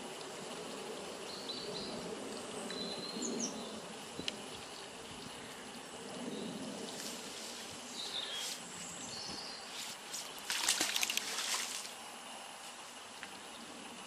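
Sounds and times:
magnet splashing into water: 10.4s - 11.9s.

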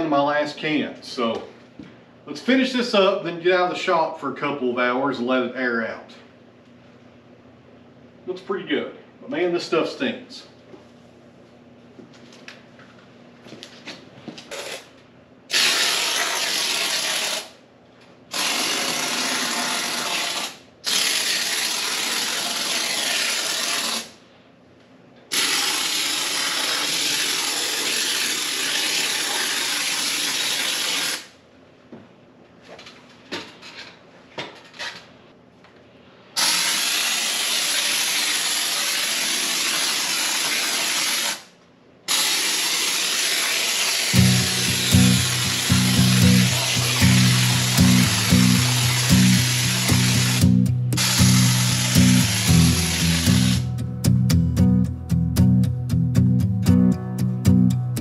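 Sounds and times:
spray foam hissing from can: 36.4s - 41.2s, 42.1s - 53.6s.

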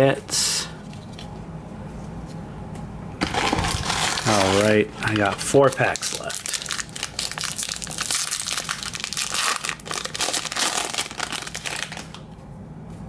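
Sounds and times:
foil wrapper crinkling: 3.2s - 12.3s.

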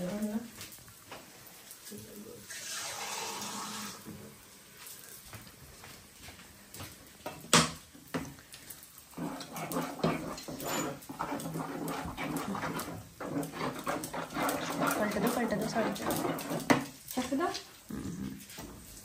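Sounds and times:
utensil stirring wet batter: 8.1s - 19.0s.

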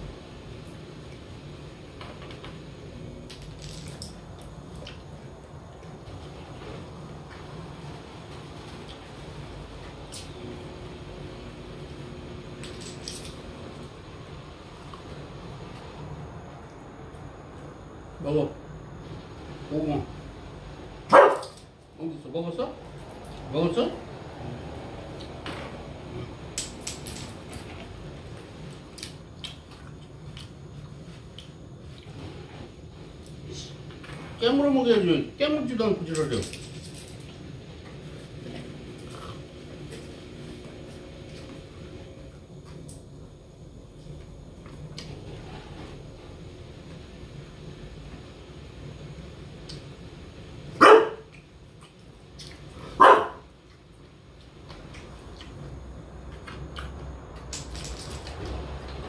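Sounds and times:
low steady hum: 0.0s - 59.0s
dog barking: 21.1s - 21.6s, 50.8s - 51.3s, 53.0s - 53.5s.

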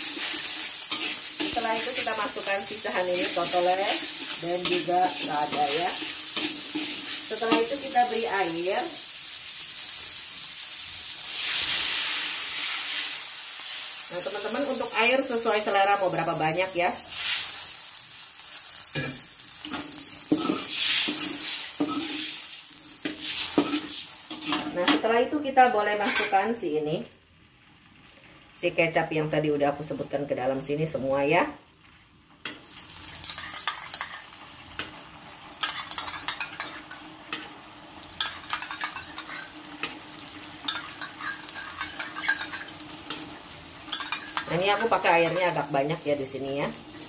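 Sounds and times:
metal spatula scraping wok: 0.0s - 8.5s, 19.0s - 24.9s, 26.0s - 26.4s, 33.1s - 34.3s, 35.6s - 37.5s, 38.2s - 45.6s
food sizzling in hot oil: 0.0s - 47.0s.

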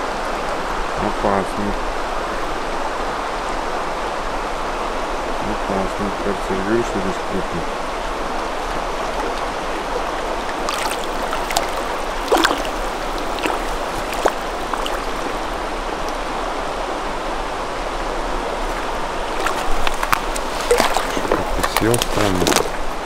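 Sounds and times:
river water running: 0.0s - 23.0s
small splashes: 8.4s - 15.8s, 18.6s - 23.0s.

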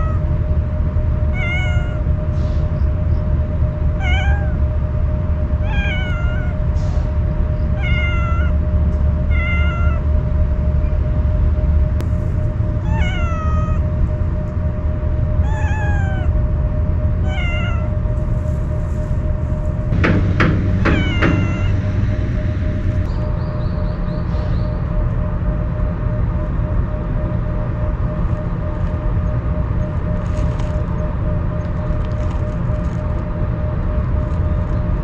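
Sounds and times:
cat meowing: 0.0s - 0.3s, 1.3s - 2.2s, 4.0s - 4.7s, 5.6s - 6.7s, 7.7s - 8.6s, 9.2s - 10.1s, 12.8s - 13.9s, 15.4s - 16.4s, 17.2s - 18.0s, 20.8s - 21.9s
steady low rumble: 0.0s - 35.0s.

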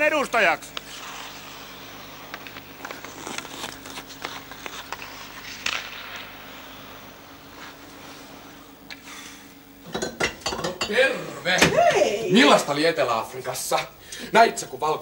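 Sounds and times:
skate blades scraping ice: 0.7s - 8.5s.

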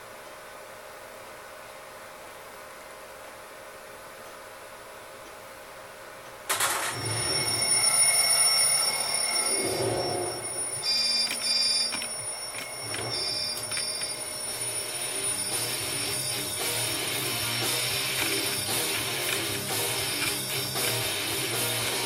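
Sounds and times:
phone alarm ringing: 6.5s - 22.0s
short electronic beeps: 6.8s - 17.4s.

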